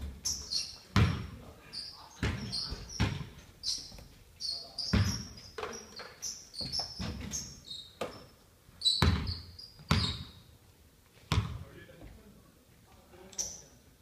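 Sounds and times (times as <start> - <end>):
basketballs bouncing on wood floor: 0.0 - 1.4, 2.2 - 4.1, 4.8 - 8.3, 9.0 - 10.4, 11.3 - 11.6
sneaker squeaks: 0.0 - 10.5, 13.4 - 13.8.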